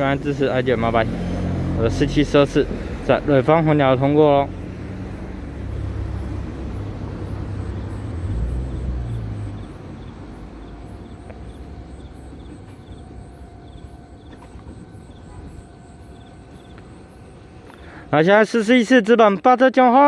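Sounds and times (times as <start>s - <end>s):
diesel train rumble: 0.0s - 20.0s.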